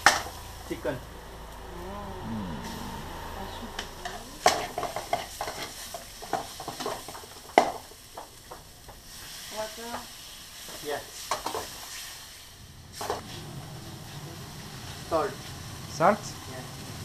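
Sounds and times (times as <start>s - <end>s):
chicken sizzling in a pan: 3.8s - 17.0s.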